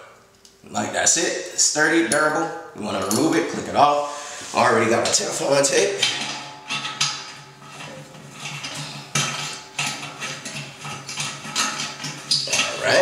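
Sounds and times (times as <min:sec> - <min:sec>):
metal fitting clicking and scraping: 0:05.0 - 0:13.0.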